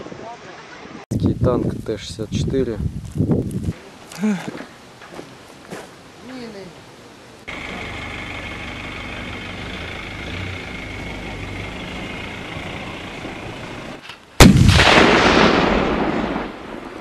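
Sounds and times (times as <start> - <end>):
outdoor hiss: 0.2 - 17.0
loud explosion: 14.4 - 17.0.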